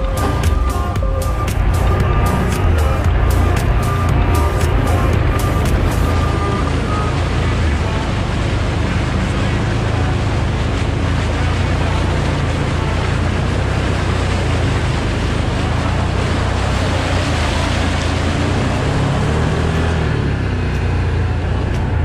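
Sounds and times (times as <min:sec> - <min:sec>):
quad engine running: 0:00.0 - 0:22.0
tyres rushing through mud: 0:00.0 - 0:22.0.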